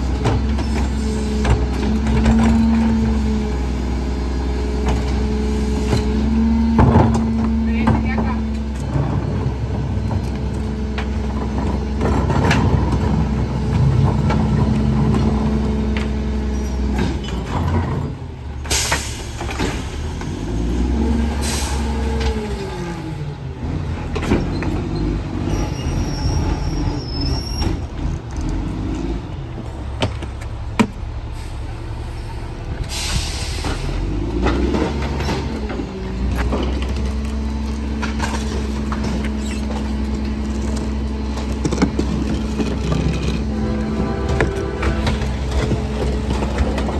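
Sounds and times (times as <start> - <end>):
garbage truck hydraulic whine: 29.6 - 36.8.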